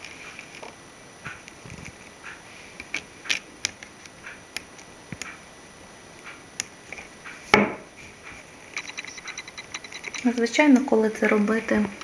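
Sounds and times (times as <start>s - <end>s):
needle clicking on glass beads: 8.8s - 10.4s.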